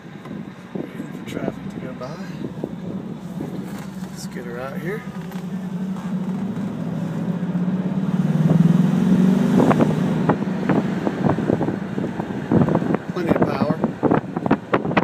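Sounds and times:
car engine drone from inside: 0:00.0 - 0:15.0.

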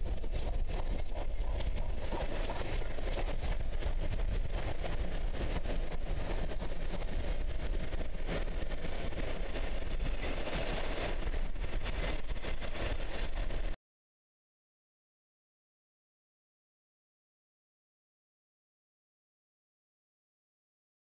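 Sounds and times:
train wheels rumbling on rails: 0:00.0 - 0:13.8
wheels clicking and clacking: 0:00.0 - 0:13.8.

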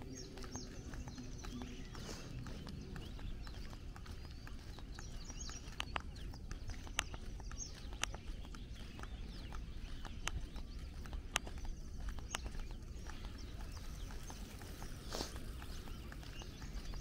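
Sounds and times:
footsteps on paved road: 0:00.0 - 0:17.0
small birds chirping: 0:00.0 - 0:17.0
steady low rumble: 0:00.0 - 0:17.0.

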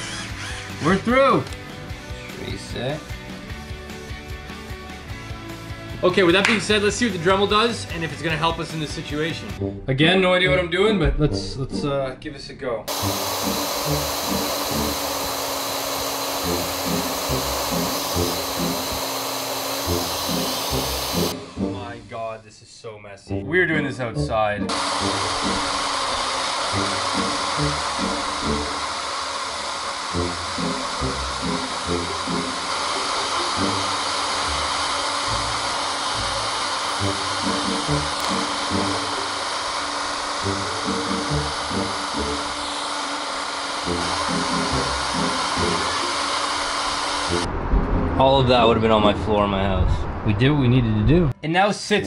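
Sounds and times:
router whining: 0:00.0 - 0:02.5, 0:12.9 - 0:21.4, 0:24.7 - 0:47.5
background music with bass line: 0:00.8 - 0:12.0.

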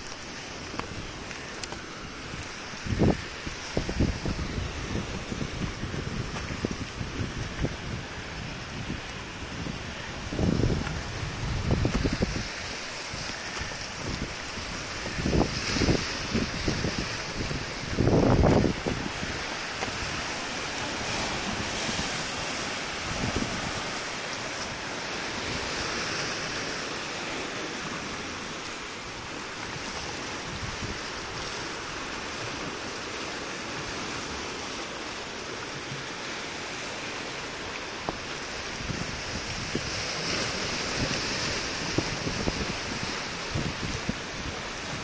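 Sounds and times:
wind buffeting microphone: 0:00.0 - 0:26.7, 0:29.1 - 0:32.8, 0:37.6 - 0:45.0
sea waves washing over rocks: 0:00.0 - 0:45.0.

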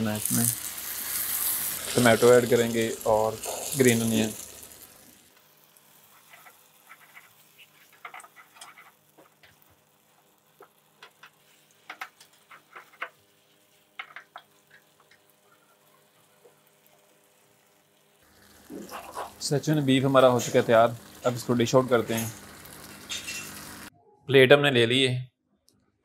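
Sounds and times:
faint sizzle of sauce: 0:00.0 - 0:23.9
spatula scraping frying pan: 0:06.0 - 0:09.7, 0:11.0 - 0:14.4, 0:18.5 - 0:19.4, 0:22.0 - 0:23.9.

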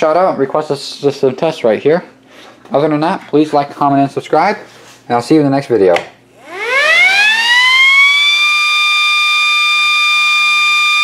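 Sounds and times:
motor siren wailing: 0:06.4 - 0:11.0.

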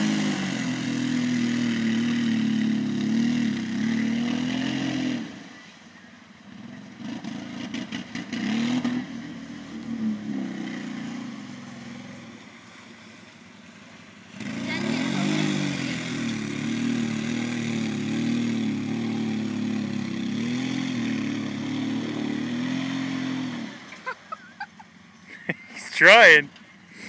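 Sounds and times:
engine revving hard: 0:00.0 - 0:05.4, 0:06.6 - 0:12.4, 0:14.3 - 0:23.9.

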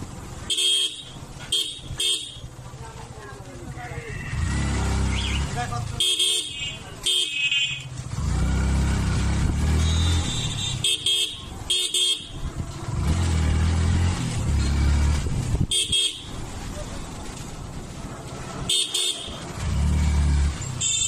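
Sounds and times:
motorcycle engine: 0:00.0 - 0:21.0
road rumble: 0:00.0 - 0:21.0
motorcycle horn beeps: 0:00.5 - 0:02.5, 0:06.0 - 0:07.9, 0:09.8 - 0:12.5, 0:15.7 - 0:16.4, 0:18.7 - 0:19.4, 0:20.8 - 0:21.0.

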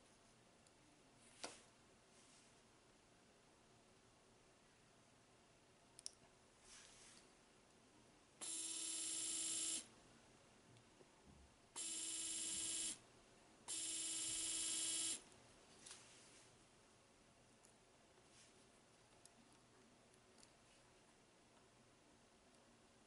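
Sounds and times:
electric motor buzzing whine: 0:08.4 - 0:09.8, 0:11.8 - 0:13.0, 0:13.7 - 0:15.2.

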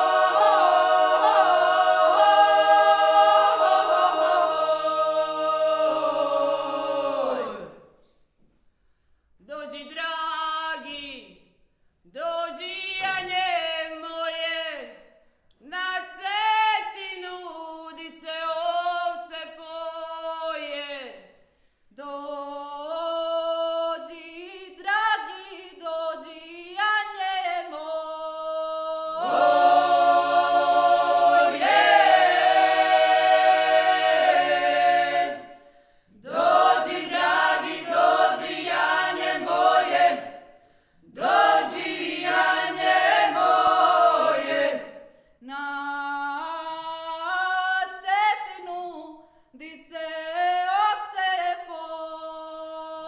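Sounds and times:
vocal ensemble singing a cappella: 0:00.0 - 0:08.1, 0:15.7 - 0:21.2, 0:22.0 - 0:49.0.

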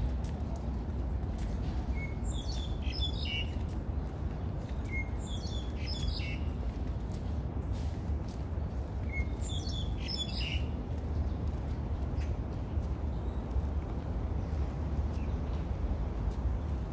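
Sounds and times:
small birds chirping: 0:02.0 - 0:04.1, 0:04.8 - 0:06.6, 0:09.1 - 0:11.4.

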